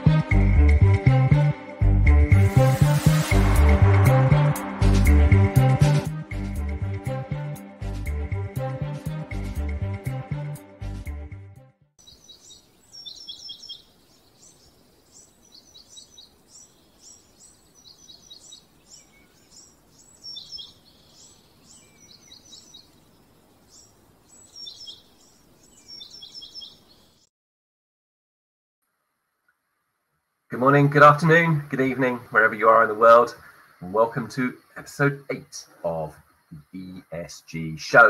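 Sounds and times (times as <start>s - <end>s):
faint outdoor hiss: 2.3s - 5.2s, 12.0s - 27.3s, 28.8s - 38.0s
birds chirping: 12.0s - 27.3s, 30.6s - 38.0s.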